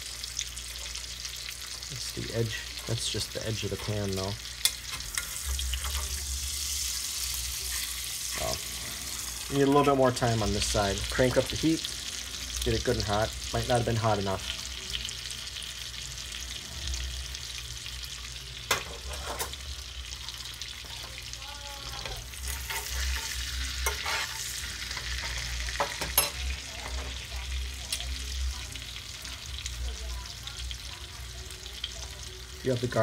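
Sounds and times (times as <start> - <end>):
steak sizzling in a skillet: 0.0 - 33.0
spoon and tongs knocking pan: 25.2 - 27.2.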